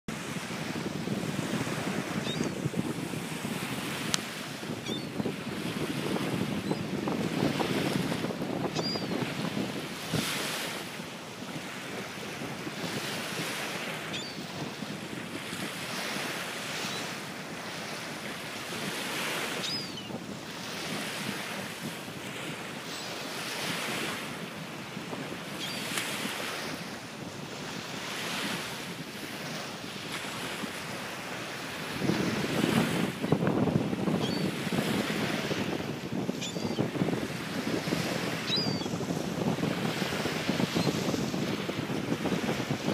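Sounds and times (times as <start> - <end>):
small waves washing onto shore: 0.1 - 42.9
wind on microphone: 0.1 - 42.9
gull calls: 38.5 - 38.9.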